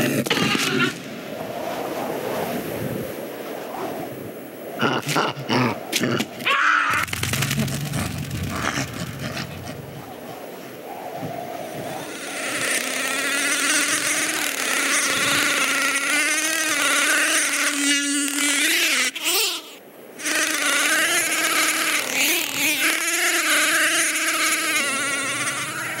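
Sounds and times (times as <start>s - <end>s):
grasshopper swarm buzzing: 11.6s - 26.0s.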